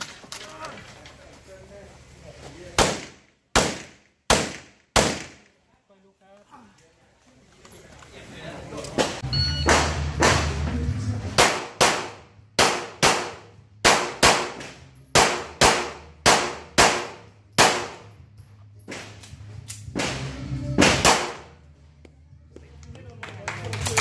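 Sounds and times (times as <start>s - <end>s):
handgun shots with echo: 2.8s - 5.5s, 11.4s - 18.1s, 20.8s - 21.5s.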